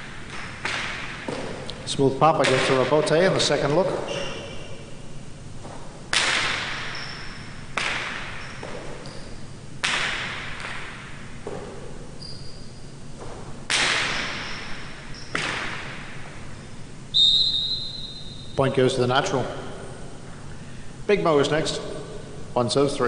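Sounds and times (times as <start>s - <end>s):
ball cracking off walls: 0.2s - 1.7s, 5.6s - 7.0s, 7.7s - 9.1s, 9.8s - 11.9s, 13.2s - 14.5s, 15.3s - 16.2s.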